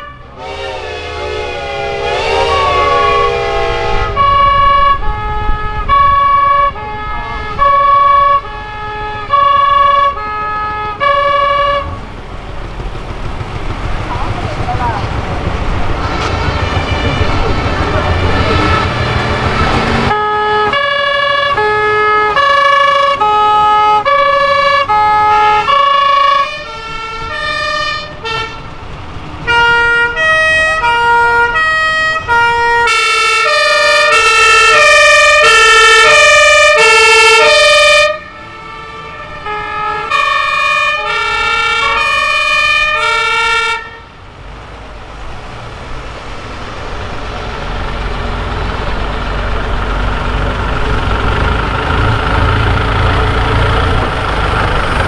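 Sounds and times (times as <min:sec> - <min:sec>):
two-tone fire engine sirens: 0:00.0 - 0:12.2, 0:16.6 - 0:44.3
truck engines rumbling: 0:00.0 - 0:55.0.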